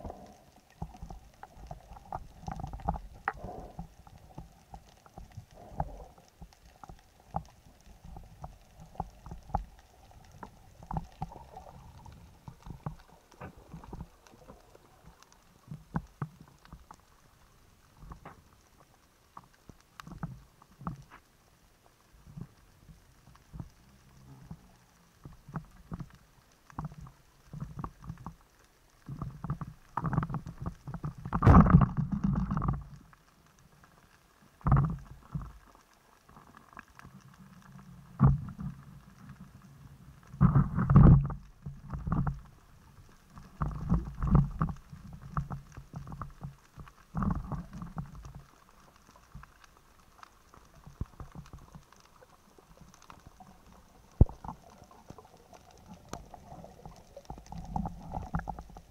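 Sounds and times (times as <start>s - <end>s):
muffled underwater rumbling and knocking: 29.0s - 33.1s, 38.0s - 39.4s, 40.0s - 49.6s, 50.2s - 58.9s.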